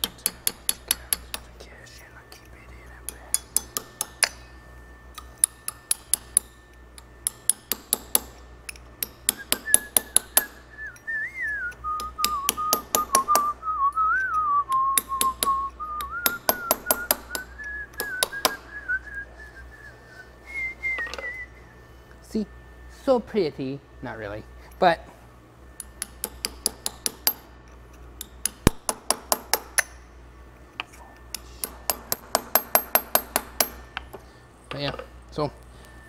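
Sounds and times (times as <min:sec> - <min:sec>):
hammer tapping metal punch: 0:00.0 - 0:01.5, 0:03.1 - 0:04.5, 0:05.1 - 0:11.1, 0:11.7 - 0:18.7, 0:25.8 - 0:30.0, 0:30.8 - 0:35.0
man whistling a tune: 0:09.3 - 0:22.2.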